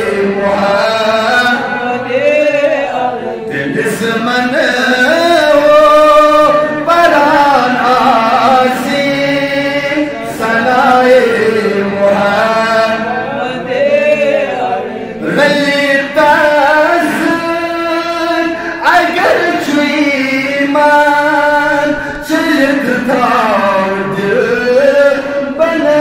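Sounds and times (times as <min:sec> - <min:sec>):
man chanting: 0:00.0 - 0:26.0.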